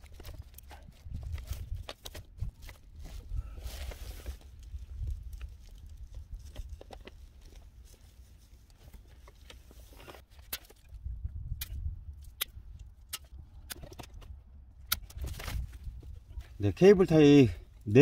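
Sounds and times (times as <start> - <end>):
handling rustles and scrapes: 0.0 - 11.0, 15.0 - 17.4.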